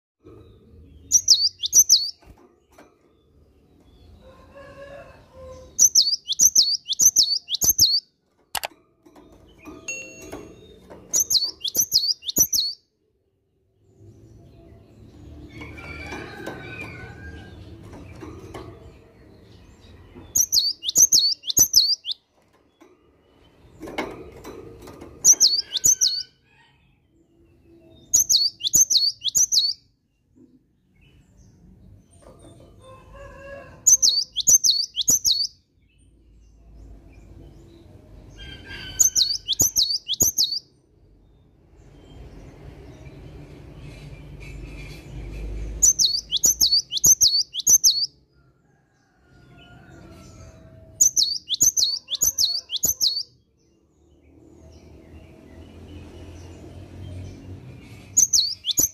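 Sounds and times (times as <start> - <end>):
bird singing high whistled notes: 1.1 - 2.2, 5.8 - 8.0, 11.2 - 12.8, 20.4 - 22.2.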